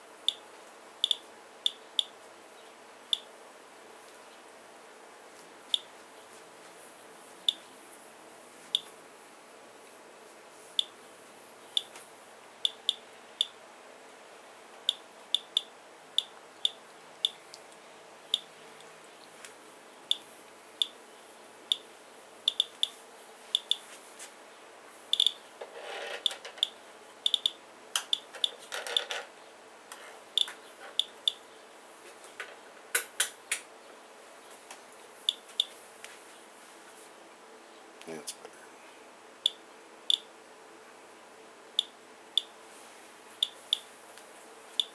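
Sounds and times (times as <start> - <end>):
geiger counter clicking: 1.0 - 2.1, 12.7 - 13.6, 14.8 - 17.4, 22.5 - 22.9, 23.6 - 23.8, 25.1 - 25.4, 26.2 - 29.1.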